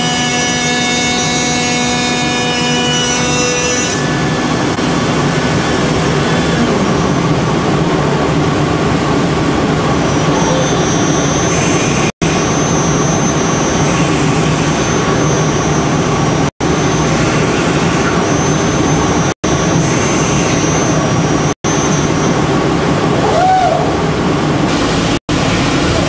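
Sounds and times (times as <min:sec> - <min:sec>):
high spindle whine: 0:00.0 - 0:23.2.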